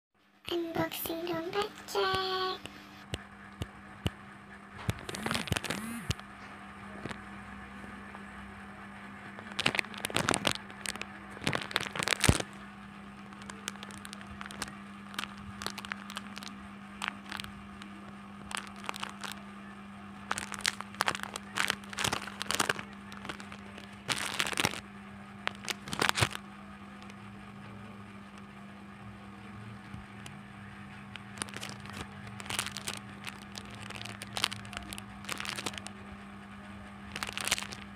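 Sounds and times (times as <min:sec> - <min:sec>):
steady low hum: 0:00.2 - 0:37.9
plastic wrappers crinkling: 0:04.9 - 0:06.2, 0:09.4 - 0:12.6, 0:13.2 - 0:17.8, 0:18.4 - 0:19.4, 0:20.3 - 0:24.8, 0:25.4 - 0:26.4, 0:31.1 - 0:35.9, 0:37.1 - 0:37.9
scissors cutting plastic: 0:20.3 - 0:24.8, 0:25.5 - 0:26.4, 0:31.2 - 0:35.9, 0:37.1 - 0:37.9.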